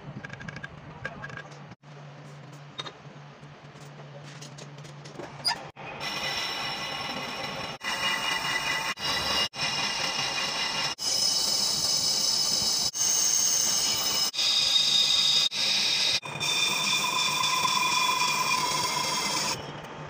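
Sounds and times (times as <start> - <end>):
metal lathe cutting steel: 5.8 - 19.9.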